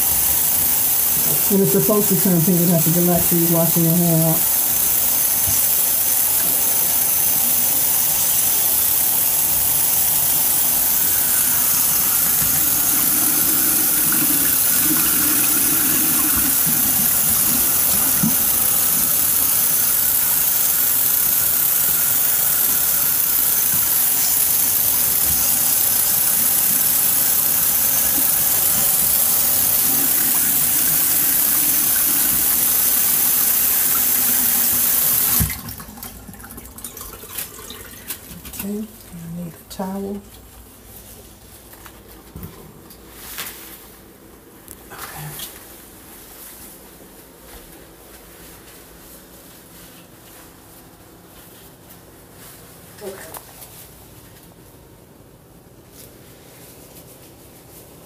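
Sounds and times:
faucet water splashing: 0.0 - 39.1.

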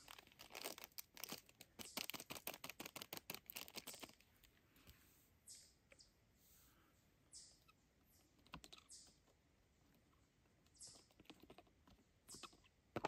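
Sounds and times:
plastic wrapper crinkling and tearing: 0.0 - 4.3.

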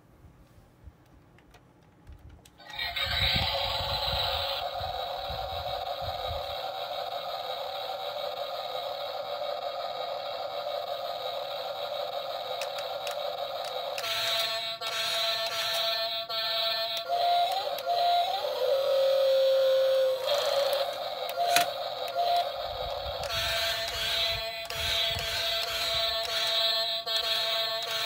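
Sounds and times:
electronic drone of held tones: 14.0 - 28.0.

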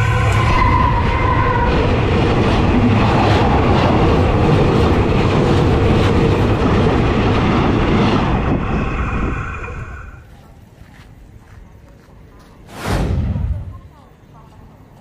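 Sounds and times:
diesel locomotive rumble: 0.0 - 10.3.

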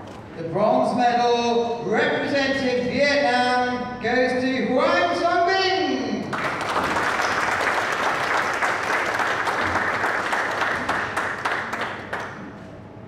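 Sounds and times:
audience applauding: 6.3 - 12.6.

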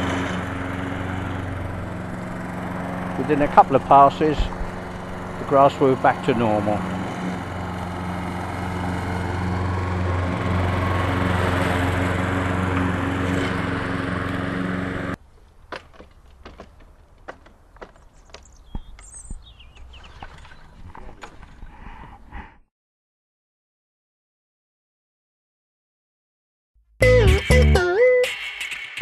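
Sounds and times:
petrol lawn mower running: 0.0 - 21.5.

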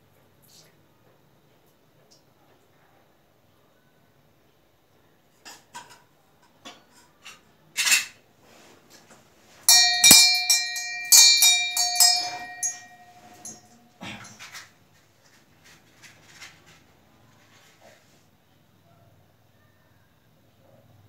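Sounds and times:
temple bell ringing: 9.7 - 13.6
metal vessels clinking: 9.7 - 14.5.

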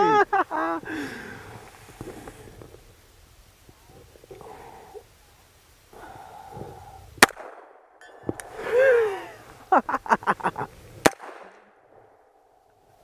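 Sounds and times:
pistol shot: 7.2 - 8.0, 11.0 - 11.9.

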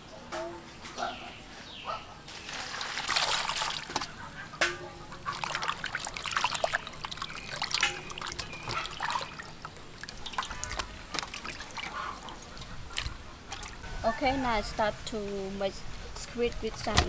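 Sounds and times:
water splashing in metal basin: 2.3 - 13.8
water dripping: 2.8 - 13.8.

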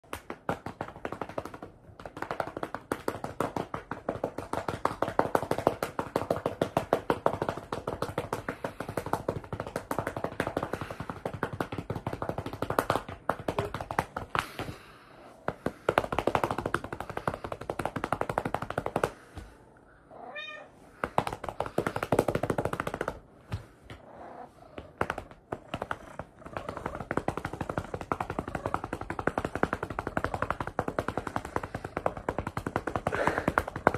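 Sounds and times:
hand patting cat: 0.0 - 19.6, 20.9 - 24.1, 24.7 - 33.9
cat meowing: 20.1 - 20.8.

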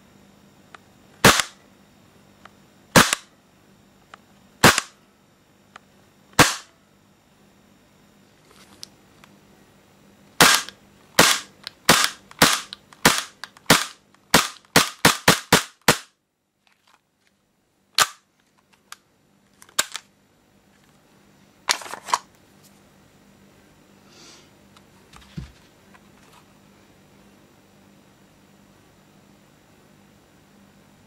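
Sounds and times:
airsoft pistol shots: 1.2 - 1.6, 2.9 - 3.3, 4.6 - 5.0, 6.4 - 6.7, 10.4 - 16.1, 18.0 - 18.2.

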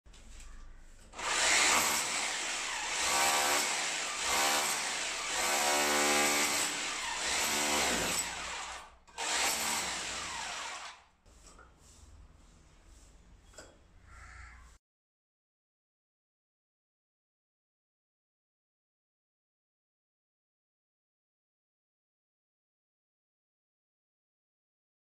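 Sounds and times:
hammer drill chipping masonry: 1.2 - 11.0.

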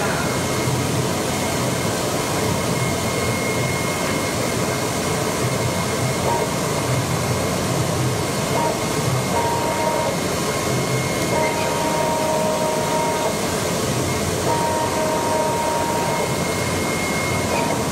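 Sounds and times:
cutting machine running: 8.4 - 17.9
thin high whine: 8.5 - 17.9.

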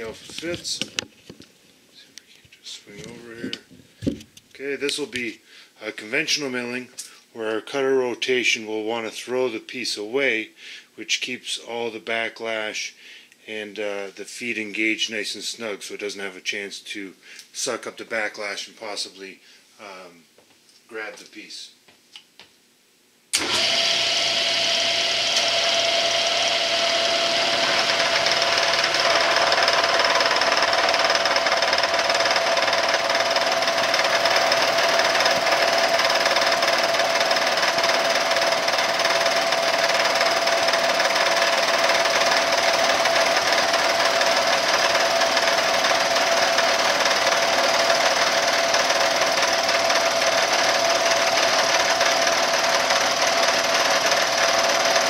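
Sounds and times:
milling machine cutting metal: 23.4 - 55.0.

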